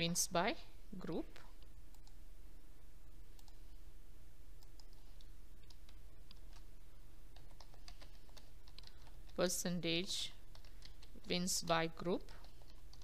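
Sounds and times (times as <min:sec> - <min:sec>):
steady low hum: 0:00.0 - 0:13.0
mouse clicks: 0:03.3 - 0:03.6, 0:04.6 - 0:06.7
keyboard keystrokes: 0:07.4 - 0:09.4.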